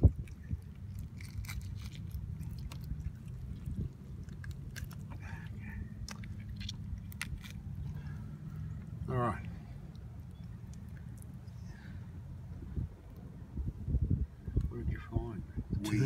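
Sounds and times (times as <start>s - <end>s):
wet squelching of fish gutting: 0.0s - 8.9s
steady low rumble: 0.0s - 16.0s
small crackly clicks: 0.2s - 5.1s, 9.9s - 11.3s.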